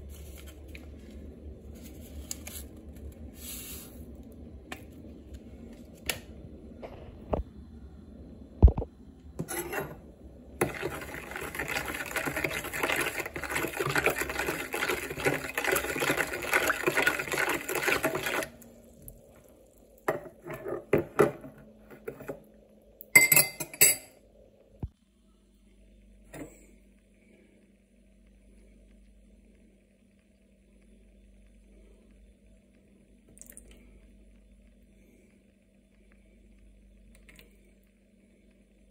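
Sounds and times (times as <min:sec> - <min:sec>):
spoon clinks and taps: 0:23.2 - 0:24.1.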